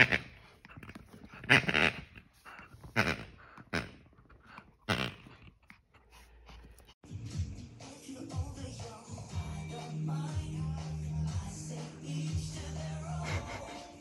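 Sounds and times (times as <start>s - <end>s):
puppy growling in play: 0.0s - 7.0s.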